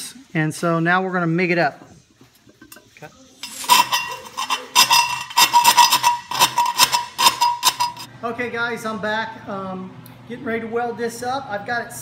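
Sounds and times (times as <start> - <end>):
hand tool scraping steel pipe: 3.4 - 8.1
metal pipe ringing: 3.4 - 8.1.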